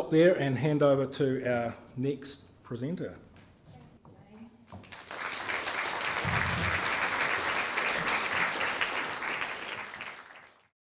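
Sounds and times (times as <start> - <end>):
audience applauding: 4.8 - 10.7.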